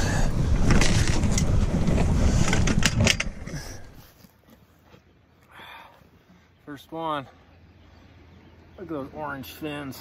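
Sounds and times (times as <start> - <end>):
camera handling rumble and rustles: 0.4 - 5.2.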